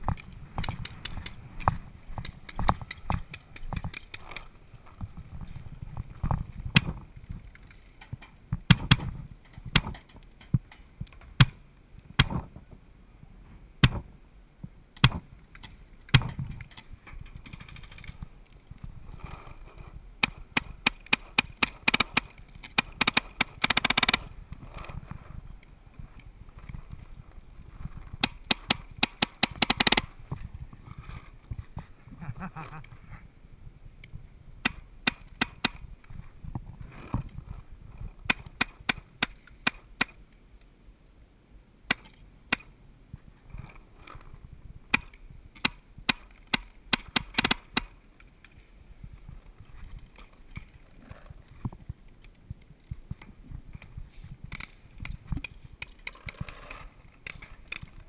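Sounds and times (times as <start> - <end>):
paintball markers firing: 8.6 - 10.6, 20.2 - 24.3, 28.2 - 30.2, 34.6 - 35.8, 38.2 - 40.2, 44.9 - 48.0.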